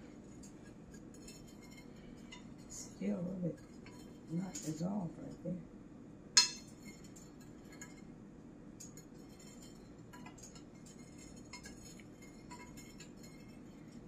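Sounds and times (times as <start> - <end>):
metal spoon clinking on glass dish: 6.4 - 8.0, 8.8 - 14.0.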